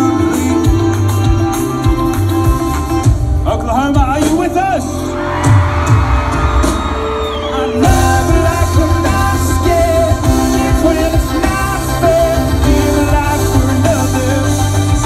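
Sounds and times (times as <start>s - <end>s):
person singing: 0.0s - 2.3s, 7.3s - 15.0s
heavy drums: 0.0s - 15.0s
live pop-rock band: 0.0s - 15.0s.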